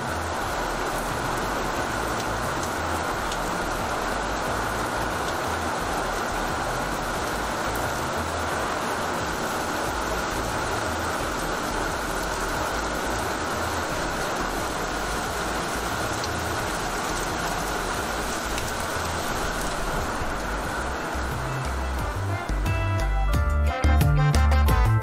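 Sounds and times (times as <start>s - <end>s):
heavy rain falling: 0.0s - 23.4s
rain splashing on wet ramp: 0.0s - 23.4s.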